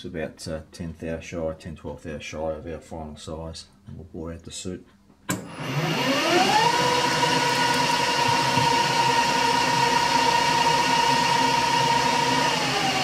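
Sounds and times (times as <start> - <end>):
metal lathe whine: 5.3 - 13.0.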